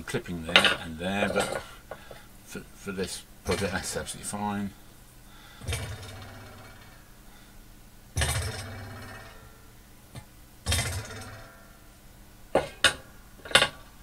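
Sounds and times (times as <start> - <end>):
metal stand clanking on workbench: 12.6 - 13.8.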